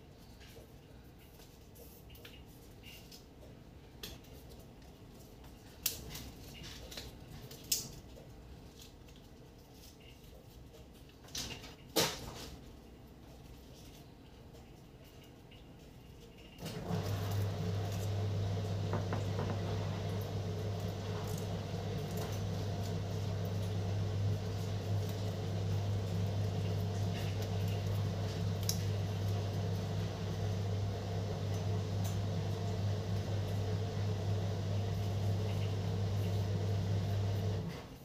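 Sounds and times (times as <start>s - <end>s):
kitchen appliance humming: 16.6s - 38.0s.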